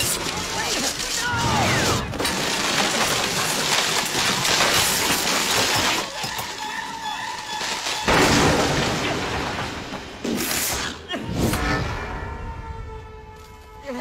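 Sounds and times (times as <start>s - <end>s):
debris crashing through scaffolding: 0.0s - 10.9s.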